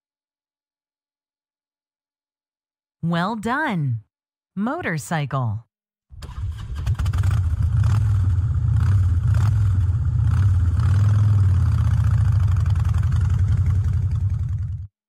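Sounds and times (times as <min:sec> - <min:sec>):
motorcycle engine idling: 0:11.7 - 0:14.9.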